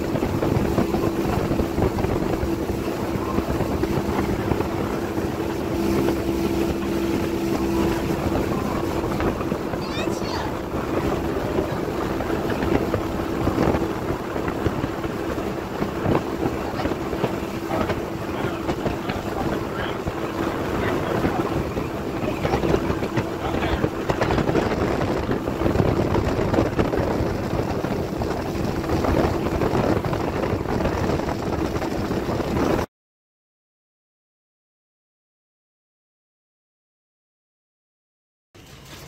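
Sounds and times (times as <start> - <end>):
speedboat engine drone: 0.0 - 32.9
water rushing from hull: 0.0 - 32.9, 38.6 - 39.0
wind buffeting microphone: 0.0 - 32.9.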